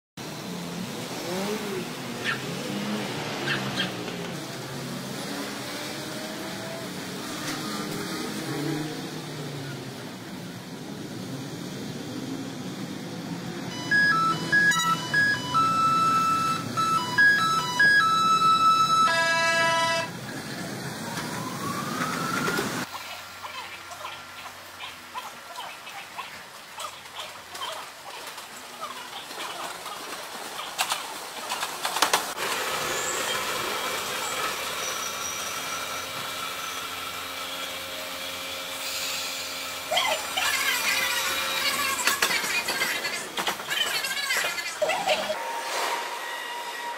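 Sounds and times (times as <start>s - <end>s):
streetcar running on rails: 0.2s - 46.9s
electronic beeping melody: 13.7s - 19.8s
train running hiss: 32.4s - 41.9s.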